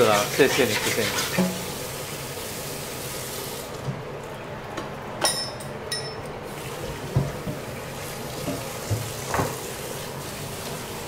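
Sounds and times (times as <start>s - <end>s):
ringing metal clinks: 5.2s - 6.3s
tap running into metal sink: 6.8s - 9.8s.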